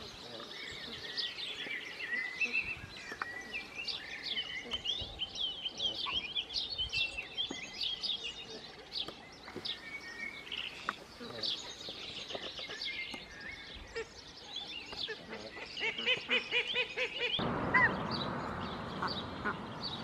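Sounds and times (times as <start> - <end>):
goslings peeping: 0.0 - 6.3, 14.9 - 20.0.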